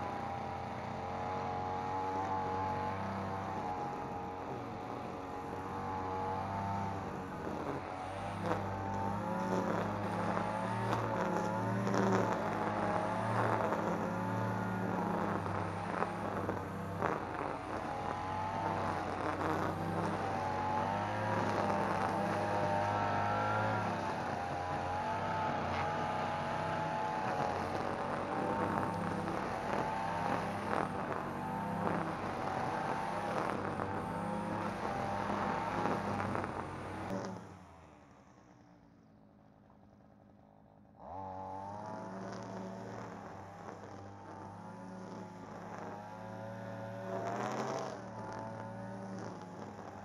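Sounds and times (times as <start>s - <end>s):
brushcutter engine running: 0.0s - 37.9s, 40.9s - 50.0s.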